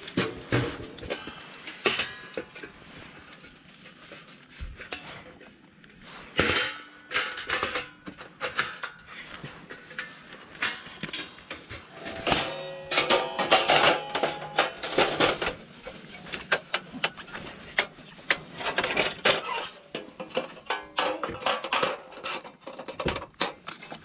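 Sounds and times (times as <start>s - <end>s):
sheet metal panels clanking: 6.4s - 23.6s.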